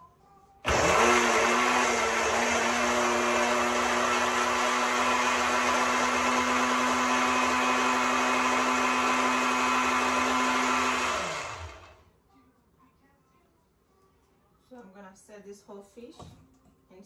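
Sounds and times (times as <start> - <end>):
blender running: 0.7 - 12.0.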